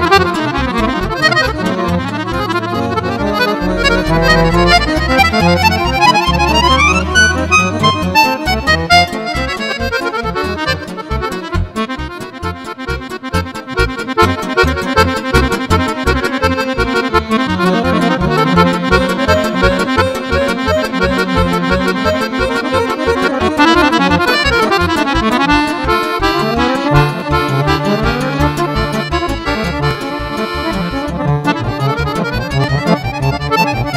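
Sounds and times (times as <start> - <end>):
button accordion playing fast runs: 0.0 - 33.9
pulsing bass beat: 2.3 - 9.2, 17.1 - 23.5.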